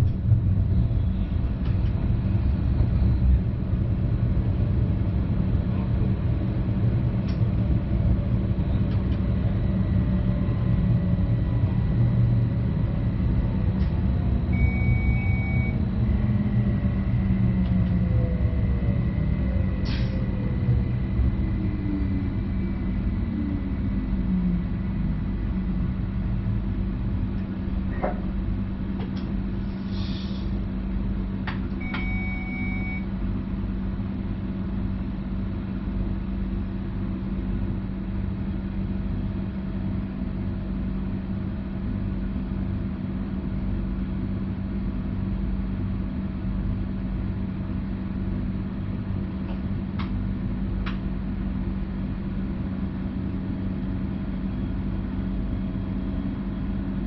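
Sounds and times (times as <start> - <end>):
train cab rumble and hum: 0.0 - 57.0
electronic beep: 14.6 - 15.8, 31.8 - 33.0.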